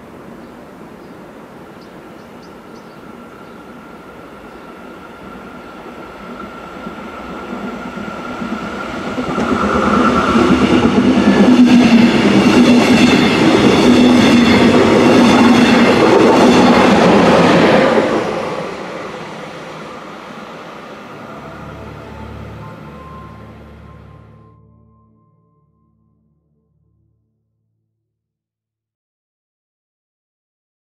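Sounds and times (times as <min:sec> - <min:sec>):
train passing at speed: 0:00.0 - 0:24.6.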